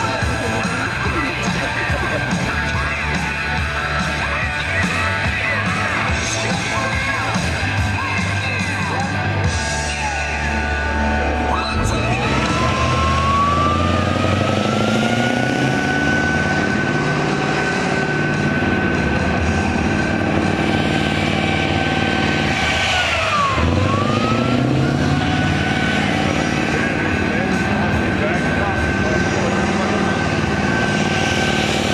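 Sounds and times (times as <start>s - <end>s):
high whine: 0.0s - 31.9s
tracked vehicle engine running: 0.0s - 31.9s.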